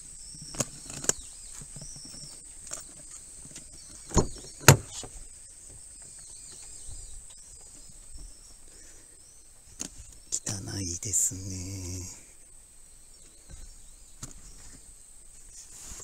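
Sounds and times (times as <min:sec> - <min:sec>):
car door clunks: 0:04.1 - 0:05.1.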